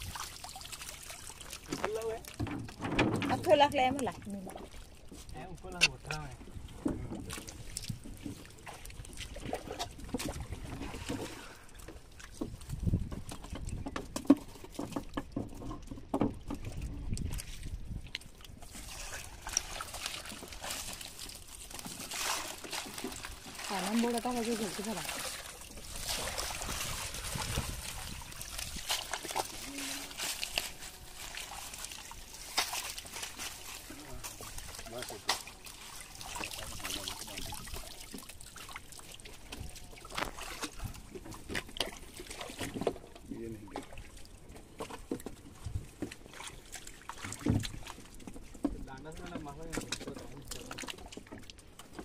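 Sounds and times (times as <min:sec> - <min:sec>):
water trickling and dripping: 0:00.0 - 0:52.0
fishing net of fish rustling: 0:14.2 - 0:48.9.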